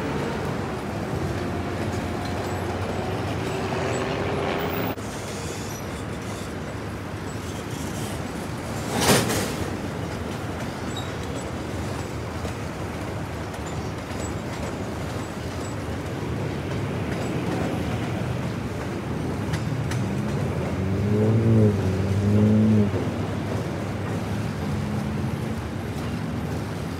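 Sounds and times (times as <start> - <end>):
train wheels rumbling on rail: 0.0 - 26.9
motor vehicle engine: 19.4 - 26.9.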